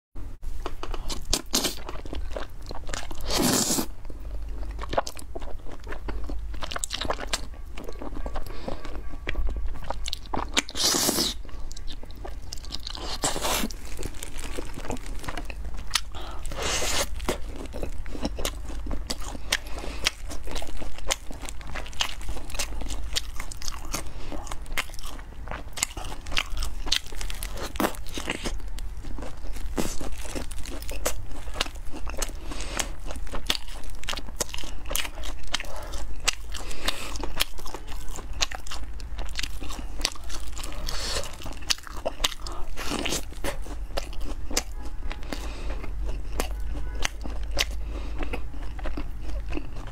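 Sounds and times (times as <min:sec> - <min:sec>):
crunchy chewing: 0:00.6 - 0:49.9
slurping noodles: 0:03.2 - 0:03.9.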